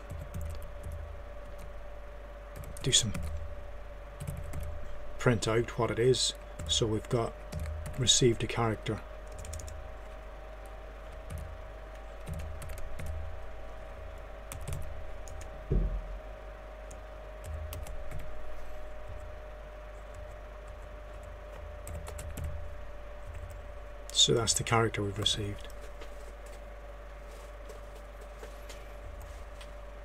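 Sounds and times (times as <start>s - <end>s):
computer keyboard typing: 0.0s - 1.7s, 2.6s - 3.5s, 4.2s - 4.8s, 6.5s - 8.3s, 9.2s - 10.2s, 11.1s - 13.4s, 14.5s - 15.5s, 16.9s - 18.3s, 20.1s - 23.6s
faint hum: 0.0s - 30.0s
dull thump: 15.7s - 16.2s.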